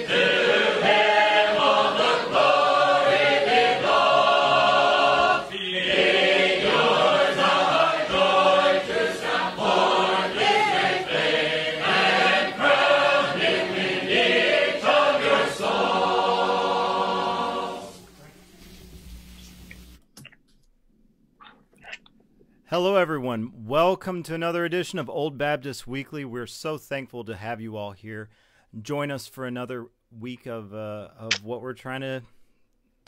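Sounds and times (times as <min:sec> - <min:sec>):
choir singing a hymn: 0:00.0 - 0:18.0.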